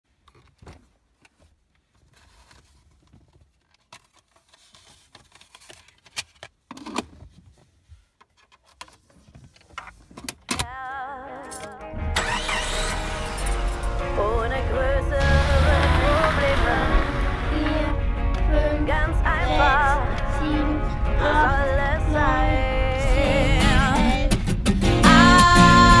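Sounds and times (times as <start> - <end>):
music: 10.9 - 26.0.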